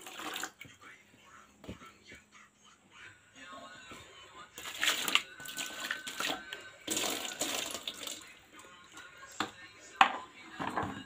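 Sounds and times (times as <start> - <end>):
water splashing into metal pot: 0.0 - 0.6, 4.6 - 8.2.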